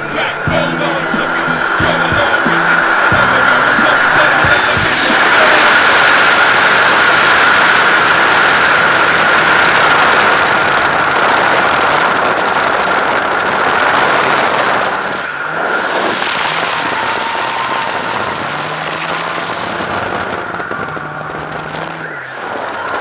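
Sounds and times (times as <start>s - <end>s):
steady high tone: 0.0s - 8.5s
microphone crackling: 0.0s - 14.7s
car engine running hard: 0.0s - 23.0s.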